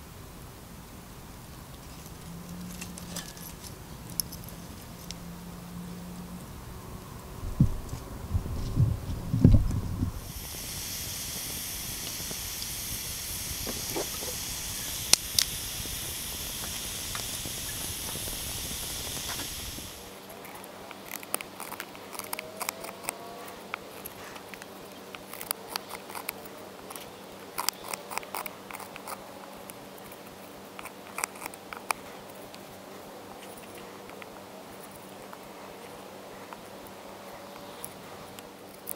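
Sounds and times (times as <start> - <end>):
wood fire hissing and popping: 9.7 - 29.2
knife carving wooden stick: 10.2 - 29.3, 30.1 - 32.6.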